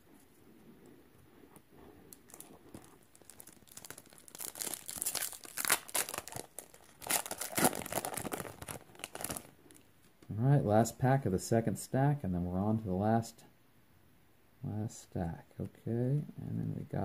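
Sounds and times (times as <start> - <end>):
faint rustling of cards: 0.0 - 10.4
foil wrapper crinkling and tearing: 2.1 - 9.8.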